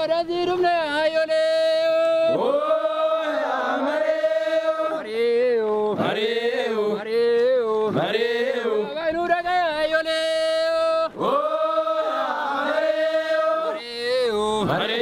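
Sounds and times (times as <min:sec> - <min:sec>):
men chanting together: 0:02.2 - 0:09.4, 0:11.0 - 0:15.0.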